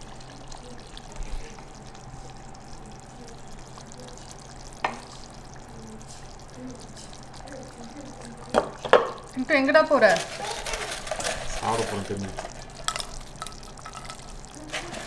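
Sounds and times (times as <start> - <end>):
food sizzling in a pan: 0.0 - 15.0
utensil clinking against dish: 10.2 - 15.0.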